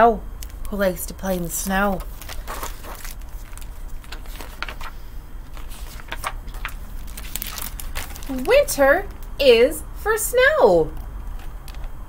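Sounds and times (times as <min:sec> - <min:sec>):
low room hum: 0:00.0 - 0:12.0
book pages rustling: 0:01.2 - 0:08.6.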